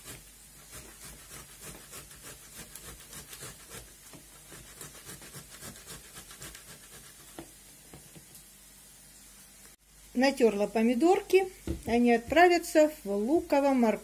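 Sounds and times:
tomatoes grated on grater: 0.0s - 7.6s.

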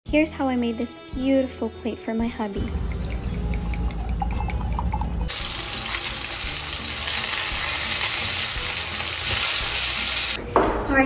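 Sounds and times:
steaks sizzling in a frying pan: 5.3s - 10.4s.

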